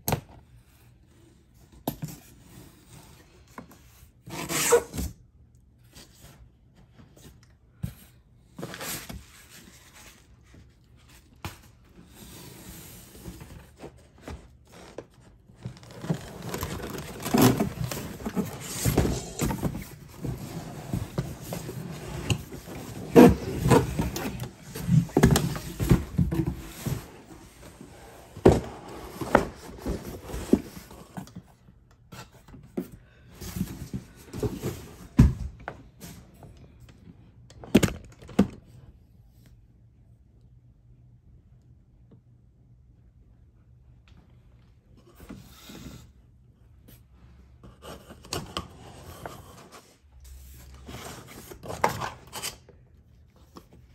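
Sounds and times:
cardboard box scraping cardboard: 0:15.7 - 0:31.2.

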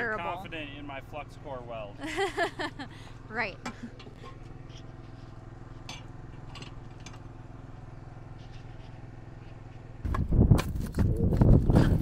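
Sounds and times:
portable generator humming: 0:00.0 - 0:12.0.

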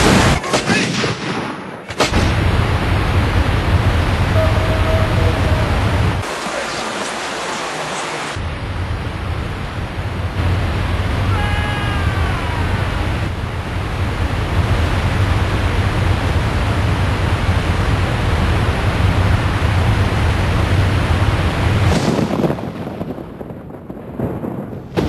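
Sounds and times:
waterfall rushing: 0:02.7 - 0:08.6, 0:09.2 - 0:22.0
short high falling call: 0:11.3 - 0:12.9.

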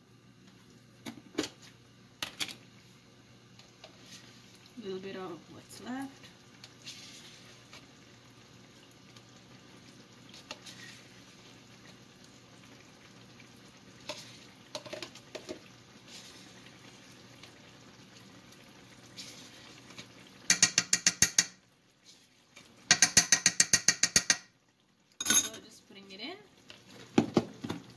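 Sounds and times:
spoon rattling against container: 0:25.2 - 0:25.6.

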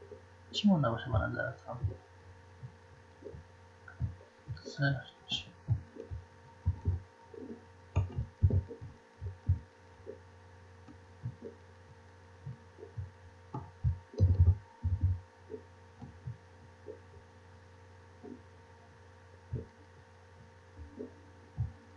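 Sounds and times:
steady electrical hum: 0:00.0 - 0:21.9
soft low thumps and knocks: 0:02.6 - 0:04.7, 0:05.5 - 0:10.2, 0:10.8 - 0:17.3, 0:19.5 - 0:21.8.

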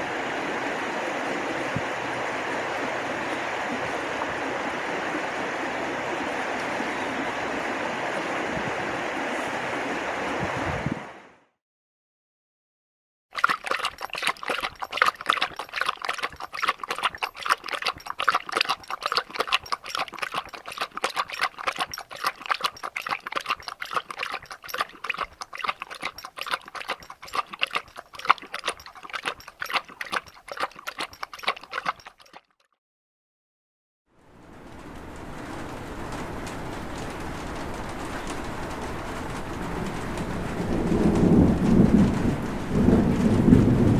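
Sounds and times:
dog lapping water: 0:13.4 - 0:32.6.

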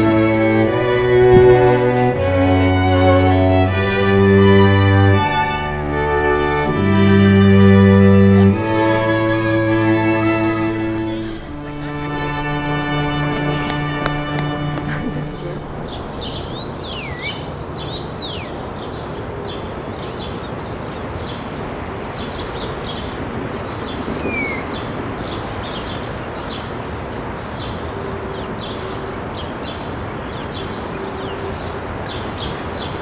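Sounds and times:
birds chirping: 0:00.0 - 0:33.0
gliding whistled bird calls: 0:15.6 - 0:18.6, 0:22.2 - 0:26.5.

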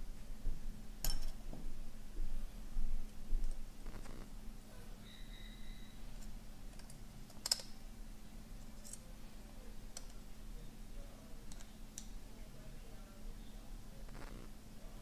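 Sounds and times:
small tools clicking on metal: 0:06.2 - 0:07.8.

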